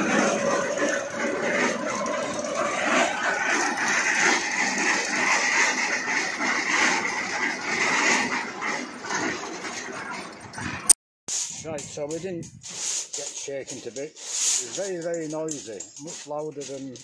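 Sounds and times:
petrol engine running: 0.0s - 10.9s.

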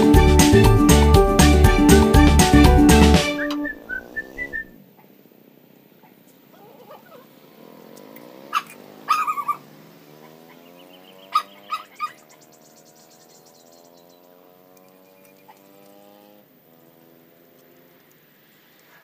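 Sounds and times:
puppies yipping and whimpering: 6.5s - 7.3s, 8.4s - 12.5s.

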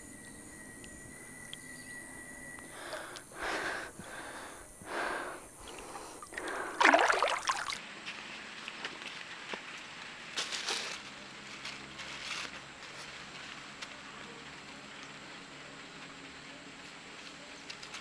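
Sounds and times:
person breathing hard: 2.6s - 7.6s
person gasping: 2.7s - 7.6s.

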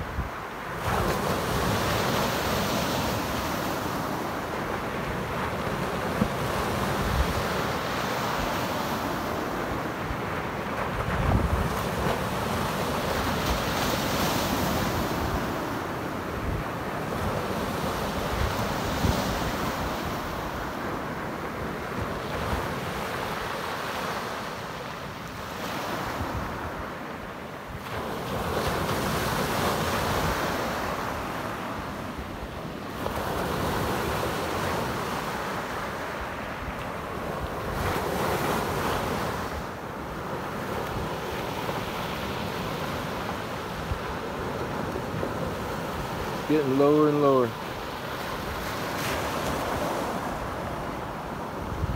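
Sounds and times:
waves washing on pebble beach: 0.3s - 51.9s
wind rumble on microphone: 9.7s - 15.6s, 48.4s - 51.9s.

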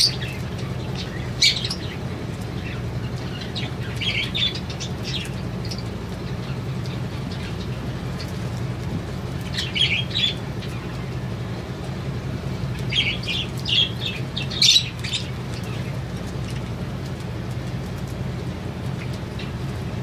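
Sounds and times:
budgerigars chirping and squawking: 0.0s - 2.0s, 2.6s - 8.5s, 9.4s - 11.2s, 12.8s - 16.7s.

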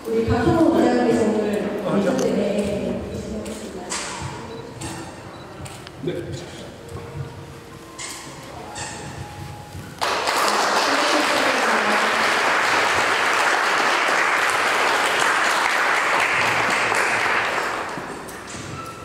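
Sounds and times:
crowd applauding: 10.0s - 18.5s.

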